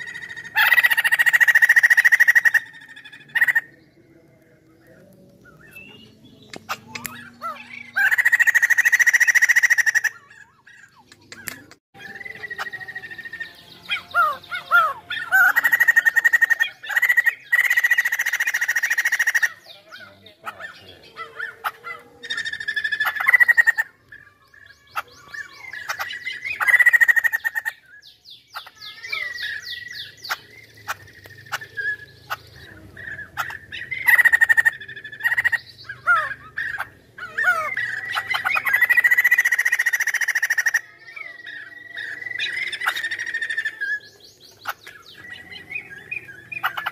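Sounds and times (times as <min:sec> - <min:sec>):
bird singing loudly: 0:00.0 - 0:46.9.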